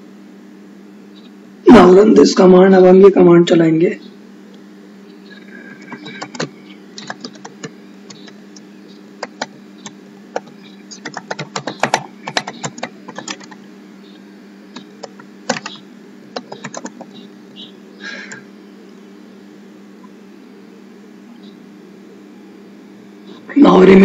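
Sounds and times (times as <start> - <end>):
typing on computer keyboard: 5.8 - 8.3, 9.2 - 13.6, 15.0 - 17.1.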